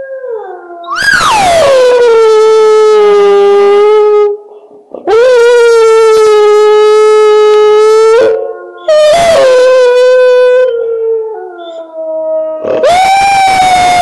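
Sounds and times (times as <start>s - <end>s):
hound dog howling: 0.0s - 4.4s, 5.1s - 14.0s.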